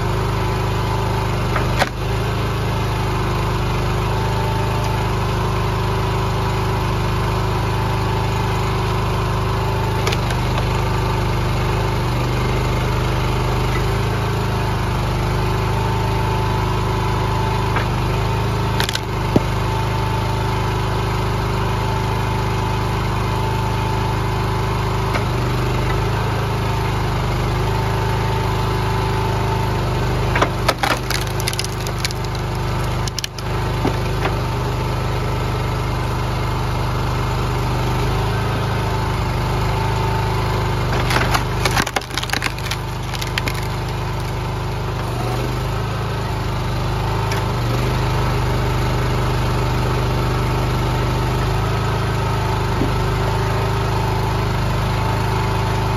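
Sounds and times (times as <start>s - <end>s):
small petrol engine running: 0.0s - 55.9s
wood cracking: 10.0s - 10.7s, 18.8s - 19.5s, 30.4s - 34.1s, 40.8s - 44.4s.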